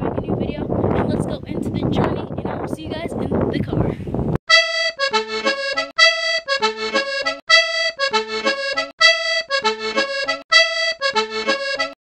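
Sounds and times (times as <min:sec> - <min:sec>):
upbeat music with repeated chords: 0:04.5 - 0:12.0.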